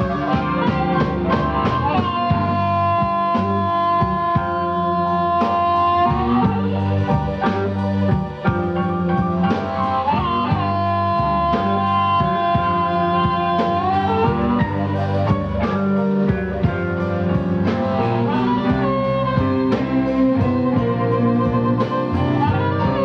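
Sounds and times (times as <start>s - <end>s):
amplified harmonica chords: 0.0s - 23.0s
bass: 0.0s - 23.0s
drums: 0.0s - 23.0s
electric guitar: 0.0s - 23.0s.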